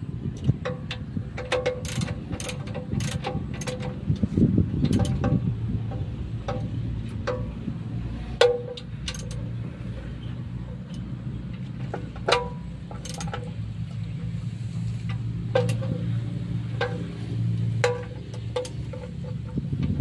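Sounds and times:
metal tool tapping on engine: 0.2 - 20.0.

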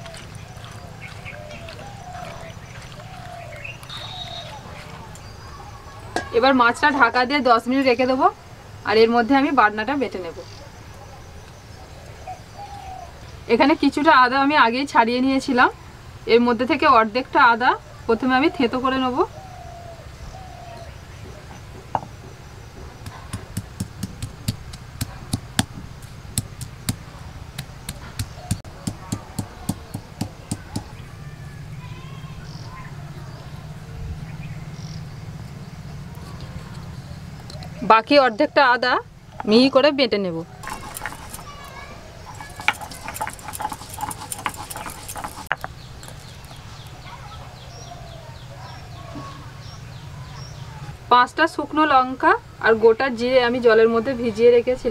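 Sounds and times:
stone pestle pounding ginger: 22.0 - 30.9, 40.6 - 41.7, 42.3 - 46.2.

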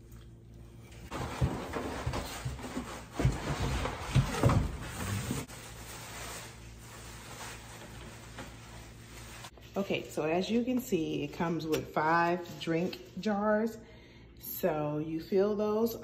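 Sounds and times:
low room hum: 0.0 - 16.0
bubble wrap crinkling: 5.0 - 9.5.

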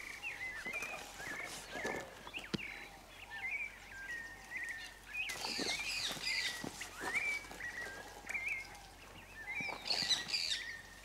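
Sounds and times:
pole rustling through branches: 0.0 - 2.6, 5.3 - 8.9
birds chirping: 0.0 - 11.0.

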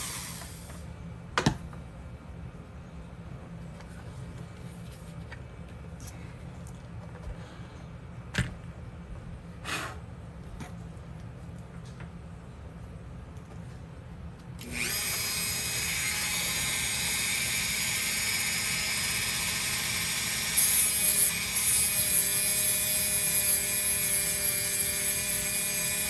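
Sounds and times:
rotary tool grinding wood: 14.6 - 26.0.

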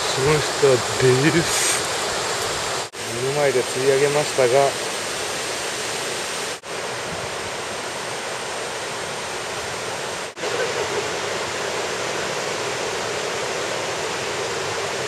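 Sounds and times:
river rushing over rocks: 0.0 - 15.0.

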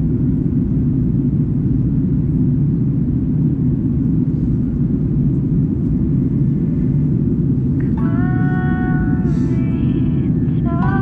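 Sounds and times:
airplane cabin low rumble: 0.0 - 11.0
rushing airflow: 2.8 - 11.0.

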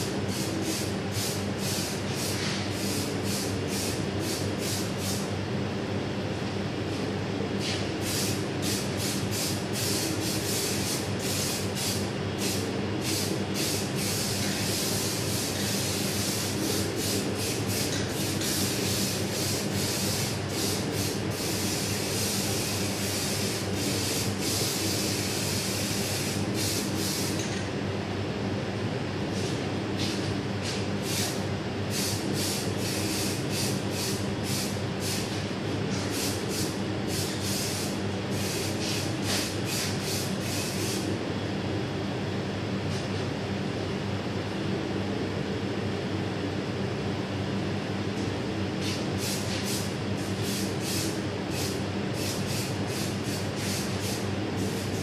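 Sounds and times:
steady machine hum: 0.0 - 55.0
aerosol spray can hissing: 36.1 - 41.0, 49.2 - 55.0.

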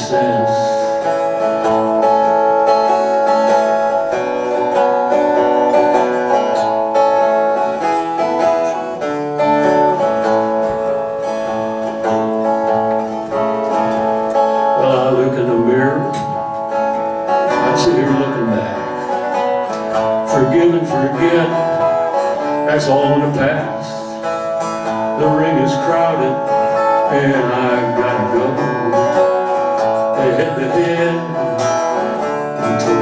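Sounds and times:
man singing: 0.0 - 1.6, 13.3 - 16.5, 17.3 - 33.0
acoustic guitar playing: 0.0 - 33.0.

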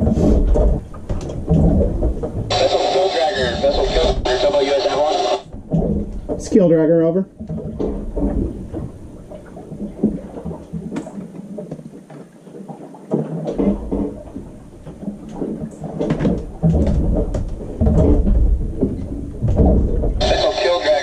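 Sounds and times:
distorted radio voice: 2.5 - 5.5, 20.2 - 21.0
radio static and crackle: 2.5 - 5.5, 20.2 - 21.0.

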